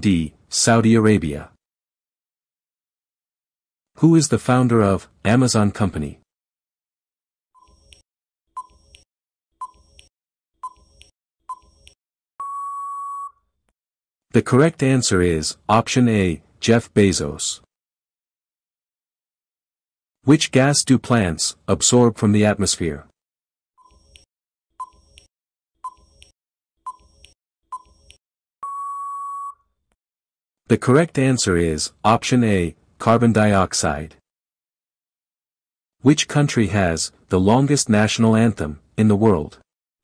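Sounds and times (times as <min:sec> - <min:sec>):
long steady beep: 0:12.4 - 0:13.4, 0:28.6 - 0:29.6
short beeps: 0:12.4 - 0:13.4, 0:28.6 - 0:29.6.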